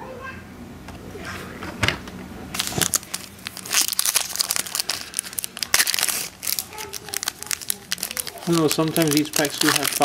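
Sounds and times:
foil wrapper crinkling and tearing: 0:02.5 - 0:10.0.

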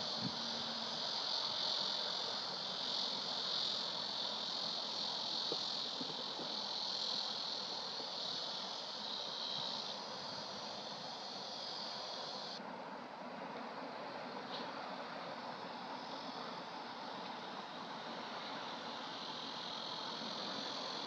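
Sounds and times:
insects trilling: 0:00.0 - 0:12.6, 0:14.8 - 0:21.0
soft outdoor hiss: 0:00.0 - 0:21.0.

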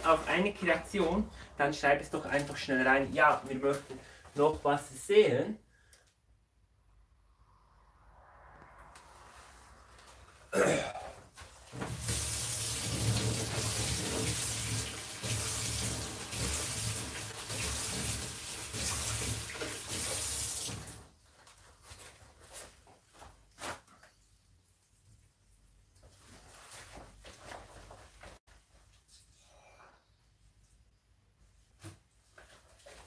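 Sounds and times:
tap water running: 0:11.7 - 0:21.1.

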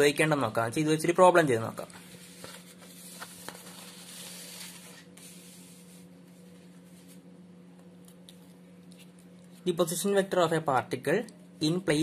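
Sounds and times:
steady low hum: 0:00.0 - 0:12.0
paper rustling: 0:01.9 - 0:07.2.

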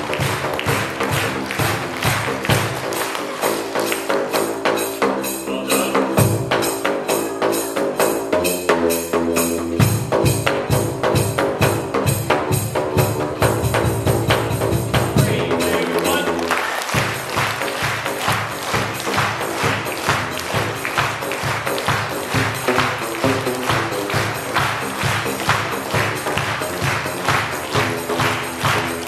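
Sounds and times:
tambourine jingling: 0:17.1 - 0:29.0.

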